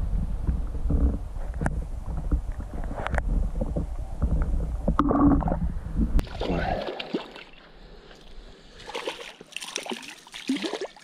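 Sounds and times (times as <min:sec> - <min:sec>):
low rumble: 0:00.0 - 0:06.7
water splashing and sloshing: 0:02.6 - 0:11.0.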